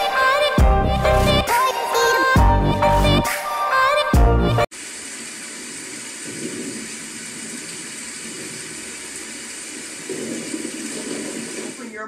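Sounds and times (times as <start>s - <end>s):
electronic music: 0.0s - 4.7s.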